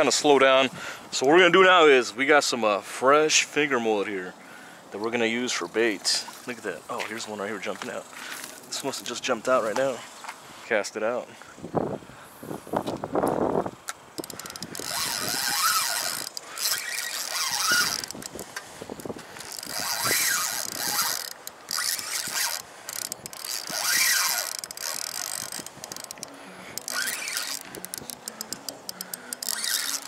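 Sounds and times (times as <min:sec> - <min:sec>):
fishing reel clicking and whirring: 0:14.2 - 0:30.0.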